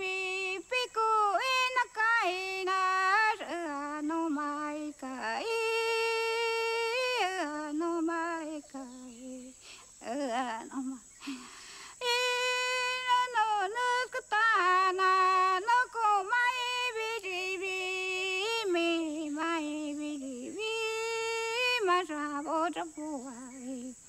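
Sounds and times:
woman singing alone: 0.0 - 24.0.

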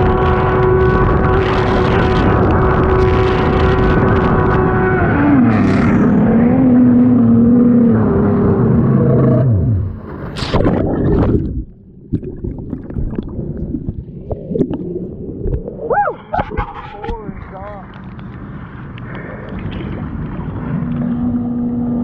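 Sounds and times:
jet ski engine running: 0.0 - 10.4, 17.0 - 22.0
water splashing: 9.8 - 22.0
water sloshing: 10.2 - 21.6.

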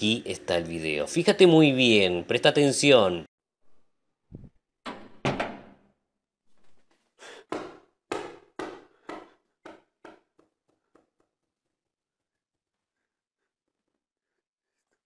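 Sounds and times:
sharp knocks: 7.5 - 10.5.

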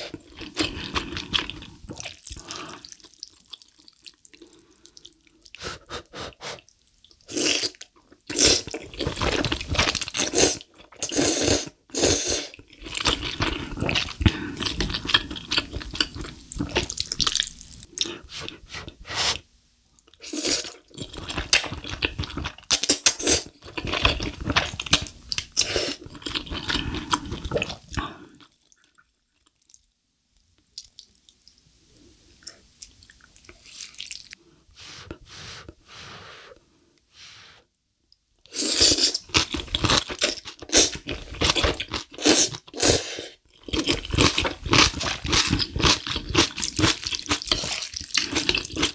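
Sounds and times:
person slurping noodles: 7.3 - 15.5, 38.5 - 48.9
chewing sounds: 43.5 - 48.9.

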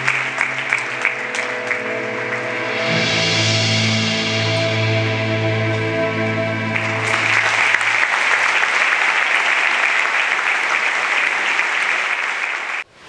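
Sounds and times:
audience applauding: 0.0 - 4.8, 5.6 - 12.9
music held chord: 0.0 - 9.6.

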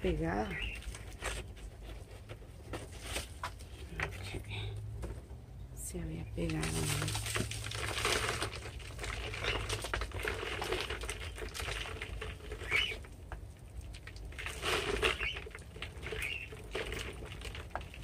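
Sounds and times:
small scratches and crackles: 0.0 - 5.3, 6.4 - 18.0
soil and roots rustling: 0.0 - 18.0.

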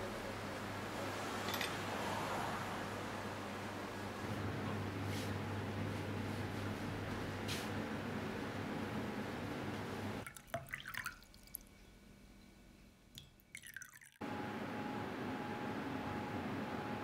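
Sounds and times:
room hum: 0.0 - 10.3
water poured into mug: 10.2 - 11.7, 13.5 - 14.2.

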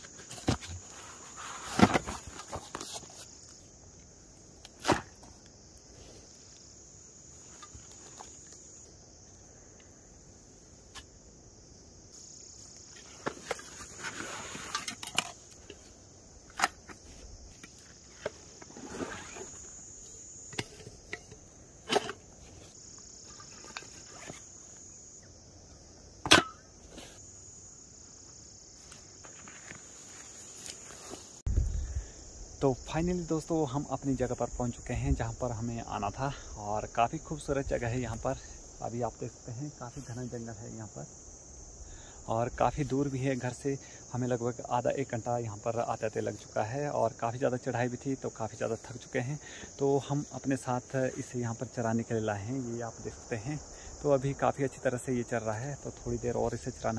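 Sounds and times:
camping gear rustling and clicking: 0.0 - 9.9, 12.2 - 27.3, 28.2 - 31.5
insects chirring: 0.0 - 56.9.

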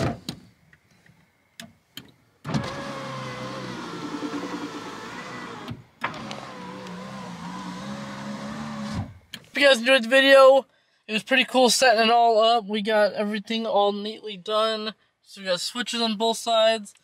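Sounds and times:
electric window motor whine: 2.4 - 9.2.

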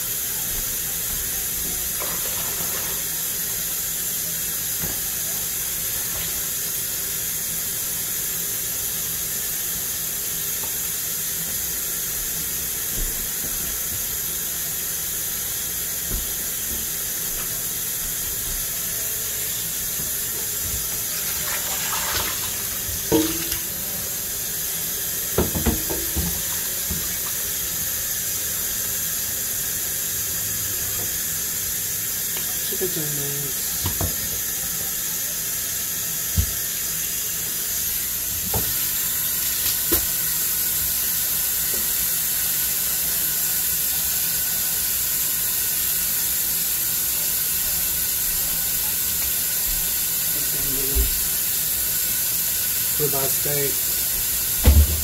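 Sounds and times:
faucet running into sink: 0.1 - 7.0, 15.2 - 37.2, 37.8 - 42.7, 47.4 - 55.0
pan knocking in sink: 21.2 - 23.8, 25.3 - 27.3, 54.6 - 55.0.

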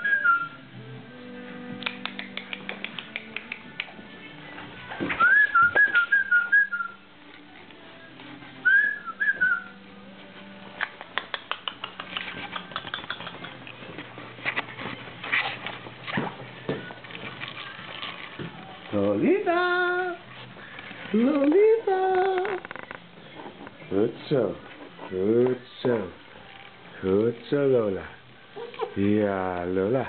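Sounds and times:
dog claws clicking on tiles: 1.8 - 4.0, 10.8 - 14.7.

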